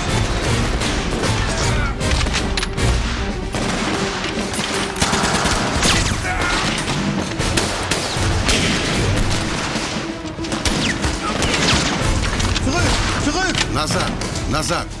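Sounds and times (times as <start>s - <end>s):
film score music: 0.0s - 15.0s
rifle and machine-gun fire: 3.5s - 13.3s.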